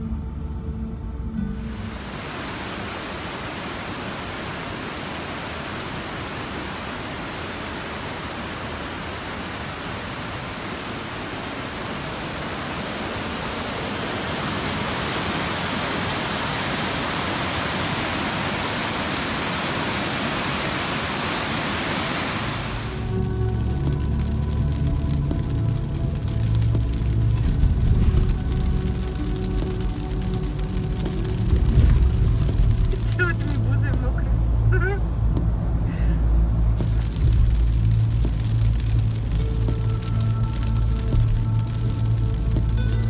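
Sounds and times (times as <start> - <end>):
stream water rushing: 1.5 - 33.7.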